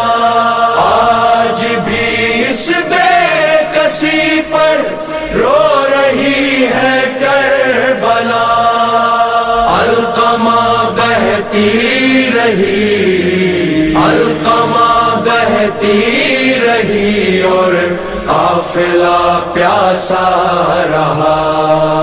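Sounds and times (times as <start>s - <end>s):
man chanting a melodic lament: 0.0s - 22.0s.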